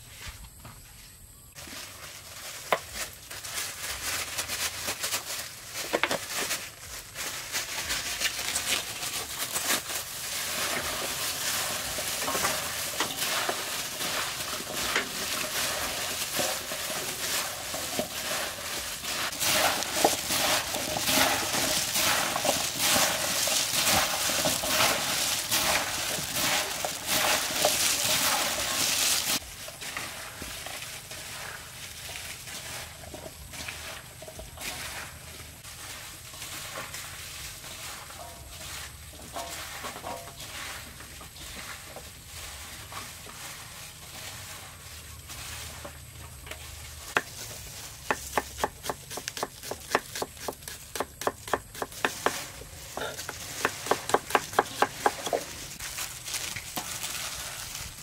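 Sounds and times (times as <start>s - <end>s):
watermelon rind rustling in bowl: 1.6s - 58.0s.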